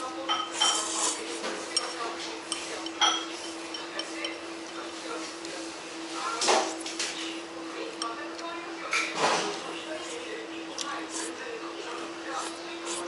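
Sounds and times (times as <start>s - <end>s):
chopsticks clinking on bowl: 1.7s - 4.8s.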